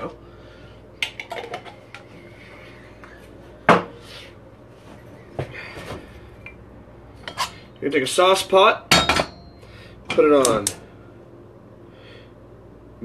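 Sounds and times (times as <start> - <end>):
knocks of cookware set down: 8.9 - 9.4.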